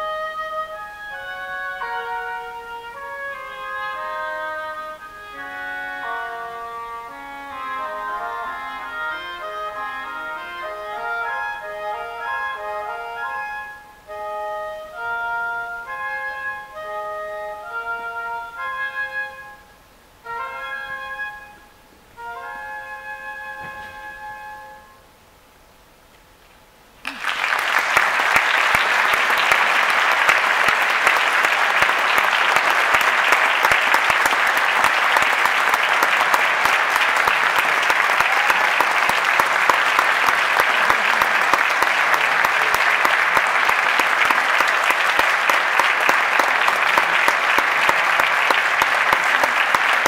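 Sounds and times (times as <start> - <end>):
oboe and english horn note: 0.0 - 25.2
audience applause: 27.0 - 50.0.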